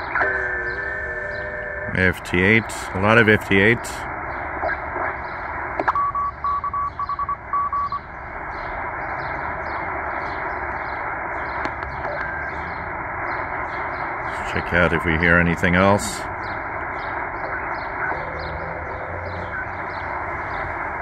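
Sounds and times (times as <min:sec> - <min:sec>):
shortwave radio hiss: 0:00.0 - 0:05.9, 0:08.3 - 0:21.0
faint birds chirping: 0:00.0 - 0:21.0
morse code beeps: 0:05.9 - 0:08.0.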